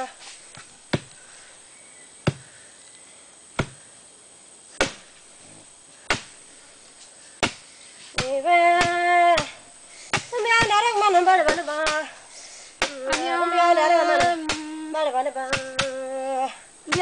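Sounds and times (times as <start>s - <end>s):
wooden pounders thudding: 0.6s - 1.2s, 2.2s - 2.6s, 3.6s - 3.8s, 4.8s - 5.3s, 7.4s - 12.1s, 15.5s - 16.0s
person singing with wavering pitch: 12.9s - 17.0s.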